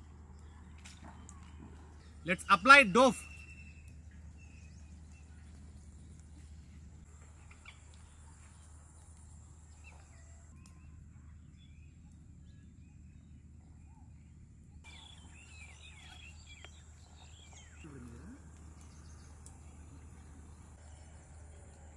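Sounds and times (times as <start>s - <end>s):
small birds chirping: 0.0s - 21.9s.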